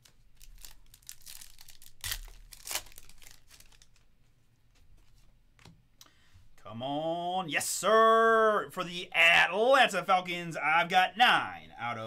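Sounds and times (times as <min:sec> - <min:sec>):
cards rustling: 0:00.0 - 0:04.1
foil pack tearing and crinkling: 0:00.4 - 0:04.0.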